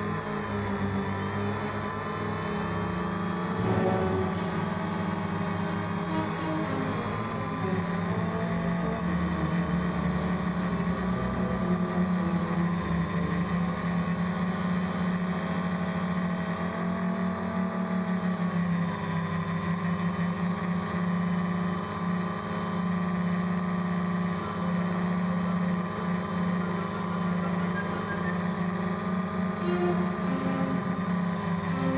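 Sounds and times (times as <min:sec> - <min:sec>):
drone propellers buzzing: 0:00.0 - 0:15.8, 0:23.8 - 0:31.9.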